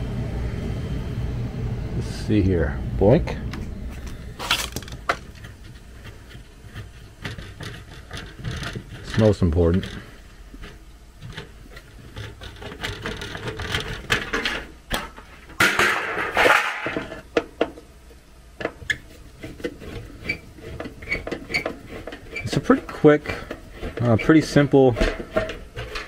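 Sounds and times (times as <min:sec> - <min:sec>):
metal scraping rustle: 0:04.0 - 0:17.3, 0:18.8 - 0:26.0.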